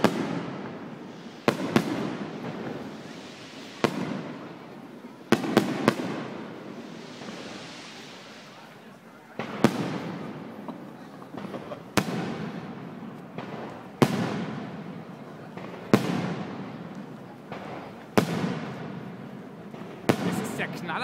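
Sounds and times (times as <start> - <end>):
small firework pops: 5.3 - 20.6
firework shells bursting: 9.4 - 21.0.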